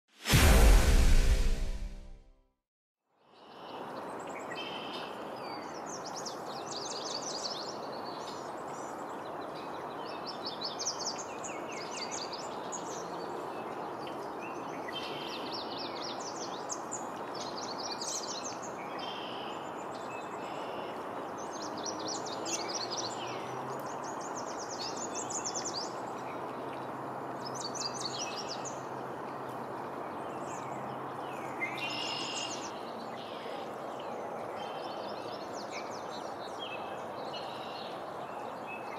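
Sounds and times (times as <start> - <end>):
river flowing over stones: 23.2 - 38.9.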